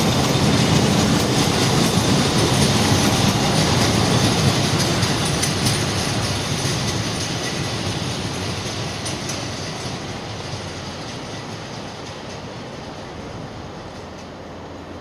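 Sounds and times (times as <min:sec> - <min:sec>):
freight train wheels rumbling: 0:00.0 - 0:15.0
wheels clicking over rail joints: 0:00.0 - 0:15.0.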